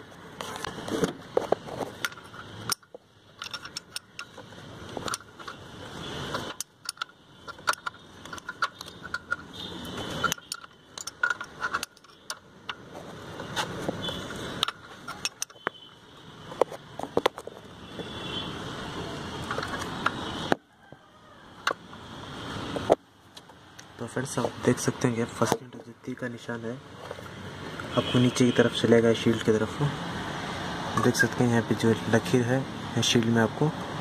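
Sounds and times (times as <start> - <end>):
scraping and handling noise: 0.0 - 18.2, 19.2 - 20.6, 26.9 - 27.9
spanner clicking on metal bolt: 2.0 - 5.6, 6.3 - 12.9, 13.5 - 15.7.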